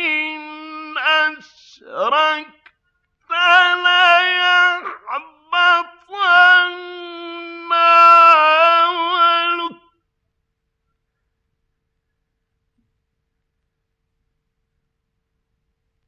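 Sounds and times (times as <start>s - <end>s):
man chanting melodic recitation: 0.0s - 2.7s, 3.3s - 10.0s.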